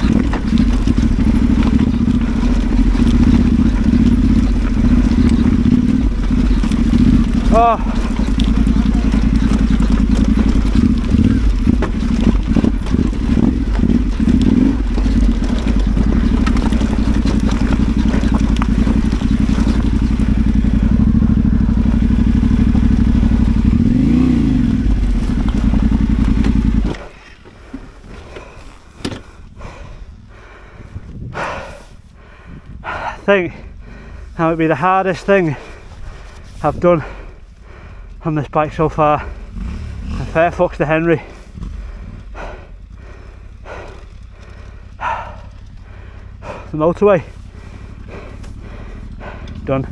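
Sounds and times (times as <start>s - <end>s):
knocks and clatter: 0.0s - 28.4s
motorcycle engine running: 0.0s - 49.9s.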